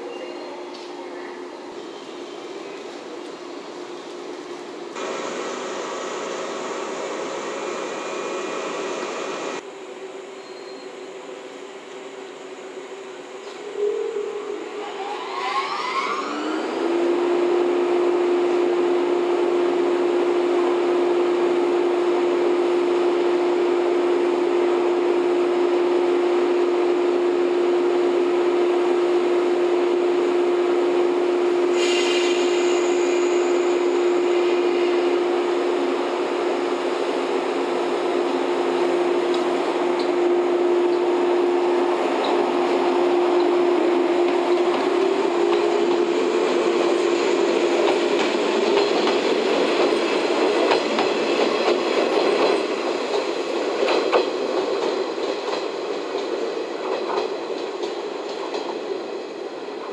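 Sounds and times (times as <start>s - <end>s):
train equipment high-pitched hum: 0.0s - 59.9s
air hiss: 31.7s - 35.0s.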